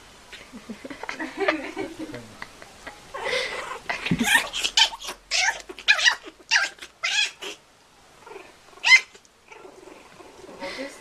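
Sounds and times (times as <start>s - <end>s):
kitten yowling and meowing: 3.6s - 7.6s.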